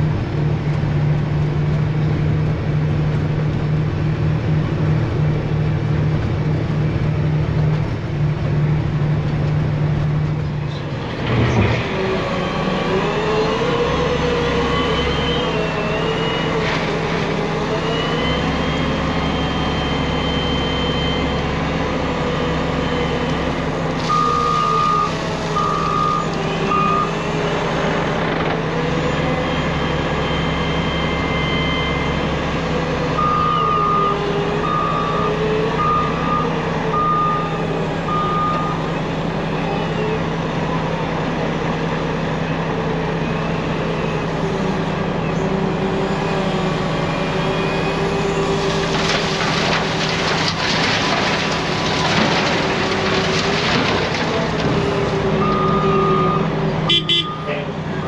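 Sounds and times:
diesel truck engine running: 0.0 - 58.0
backup alarm beeping: 55.4 - 57.6.

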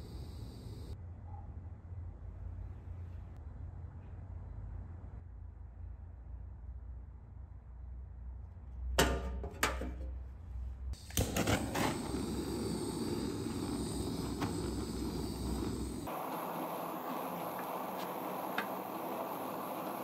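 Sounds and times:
gas torch flame hissing: 0.0 - 1.0, 11.0 - 20.0
torch igniter clicks: 11.0 - 20.0.

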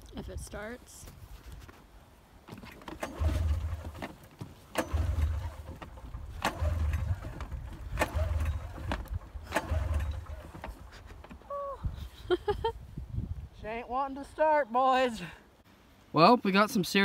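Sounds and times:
engine turning over: 2.6 - 11.4.

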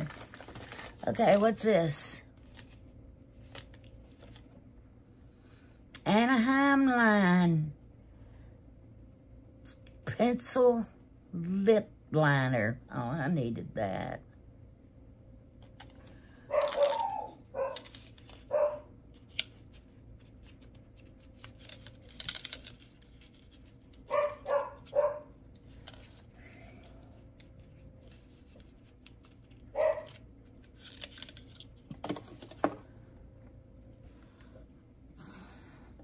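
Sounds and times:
dog barking: 16.5 - 17.9, 18.5 - 18.9, 24.1 - 25.3, 29.7 - 30.2.

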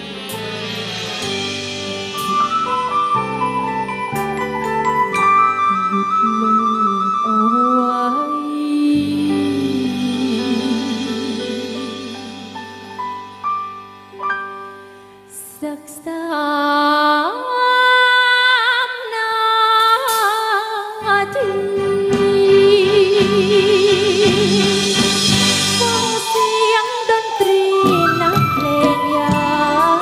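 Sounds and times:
band accompaniment: 0.0 - 6.4, 9.1 - 15.1, 21.4 - 30.0
woman singing a slow ballad: 5.8 - 12.8, 15.3 - 30.0.

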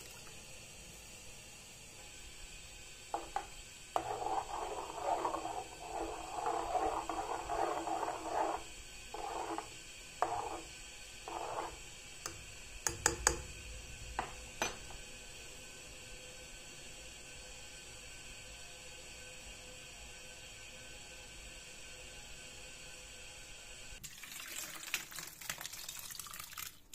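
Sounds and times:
spoon scraping a metal pan: 3.1 - 13.4
spoon tapping pan: 12.3 - 13.5.

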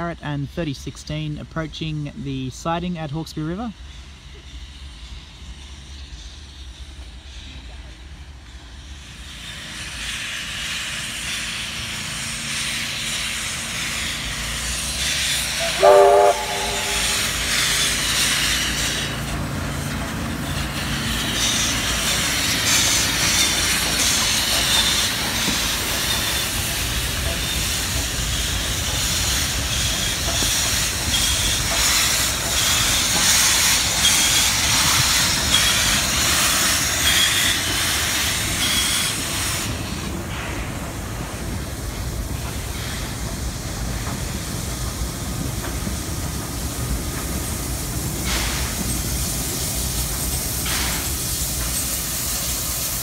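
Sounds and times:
steam hissing: 2.7 - 53.0
train wheels clattering: 8.9 - 53.0
steam locomotive whistle: 15.5 - 17.5.

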